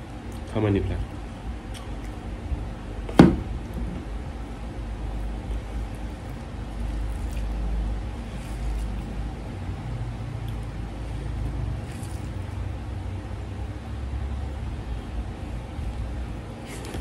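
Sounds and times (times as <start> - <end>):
steady low rumble: 0.0 - 17.0
food being mixed by hand: 4.4 - 12.9.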